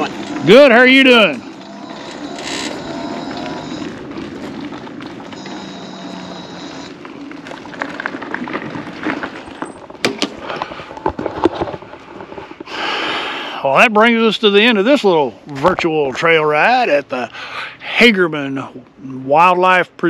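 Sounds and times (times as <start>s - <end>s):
scooter motor and tyres humming: 0.0s - 11.2s
gravel crunching under tyres: 0.0s - 12.7s.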